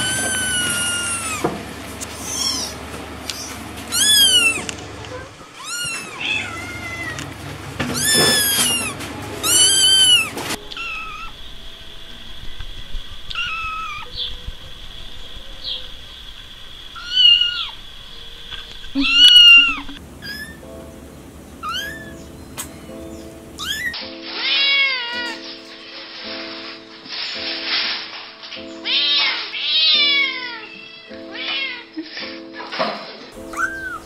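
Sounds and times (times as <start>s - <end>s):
kitten mewing: 0.0s - 1.5s, 2.1s - 7.3s, 7.9s - 11.3s, 19.0s - 20.6s, 21.6s - 22.2s, 23.6s - 25.4s, 33.5s - 34.0s.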